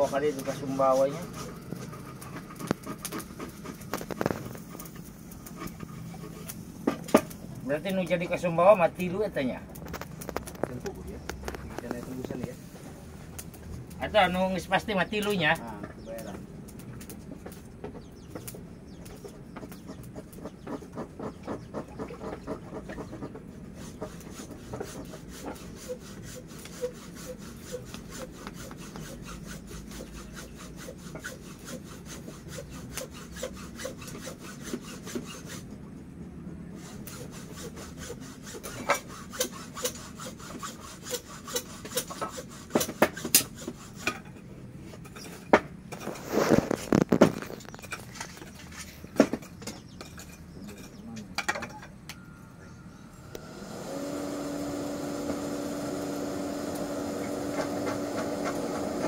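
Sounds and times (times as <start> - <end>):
blade rubbing on sharpening stone: 23.8 - 35.7, 36.8 - 44.3.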